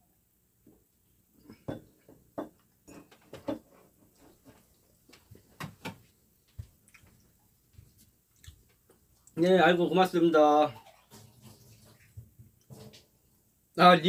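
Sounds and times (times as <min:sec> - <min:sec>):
ceramic mugs knocking on wooden table: 0:01.6 - 0:03.6.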